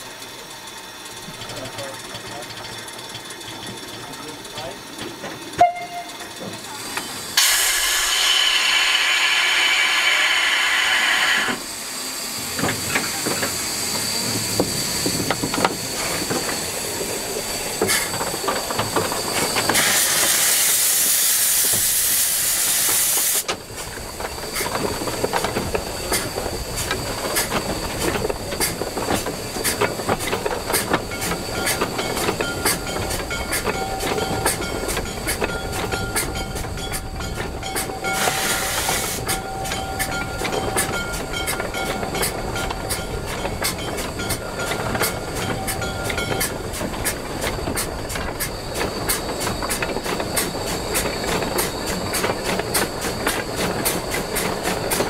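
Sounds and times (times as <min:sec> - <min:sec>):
wheels and rods clicking and clanking: 0:00.2 - 0:07.1, 0:12.6 - 0:21.9, 0:22.9 - 0:55.0
hissing steam: 0:06.2 - 0:55.0.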